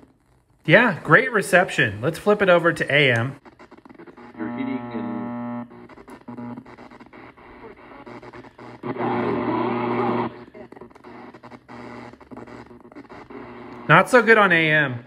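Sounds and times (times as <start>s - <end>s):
radio static hiss and crackle: 0.0s - 15.0s
radio station broadcast: 0.7s - 15.0s
steady hum: 4.3s - 14.9s.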